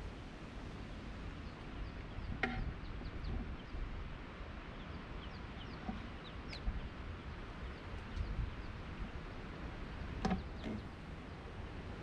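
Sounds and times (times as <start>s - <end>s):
wind rumbling on microphone: 0.0s - 12.0s
birds chirping: 4.6s - 9.2s, 9.8s - 11.0s.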